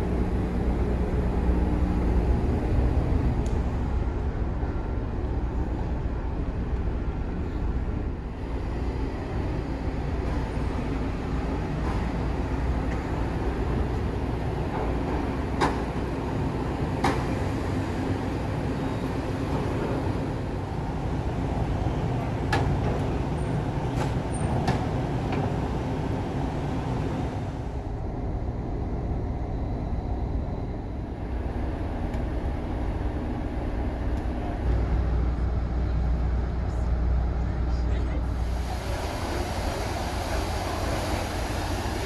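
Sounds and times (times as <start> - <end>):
ship engines rumbling: 0.0 - 42.0.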